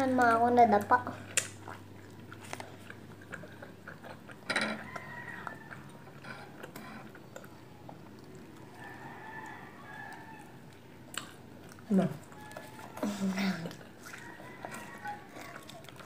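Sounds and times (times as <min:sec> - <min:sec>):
biscuit crunching: 0:00.2 - 0:16.0.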